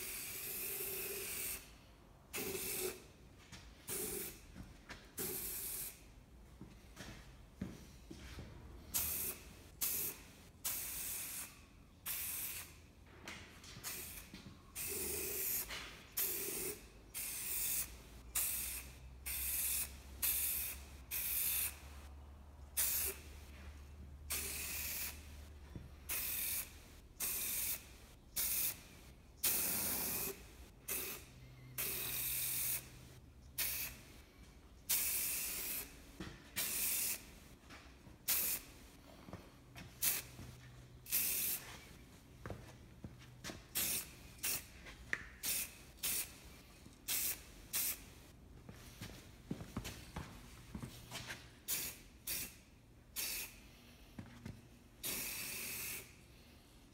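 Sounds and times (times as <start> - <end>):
spray can hissing: 2.4 - 3.0, 14.8 - 21.8, 22.8 - 23.2, 24.3 - 25.2, 26.1 - 27.8, 28.4 - 28.8, 29.4 - 31.2, 31.8 - 32.9, 33.6 - 34.0, 34.9 - 35.9, 36.6 - 37.2, 38.3 - 38.7, 40.0 - 40.3, 41.1 - 41.6, 43.8 - 44.7, 45.4 - 46.3, 47.1 - 48.0, 53.2 - 53.6, 55.0 - 56.1.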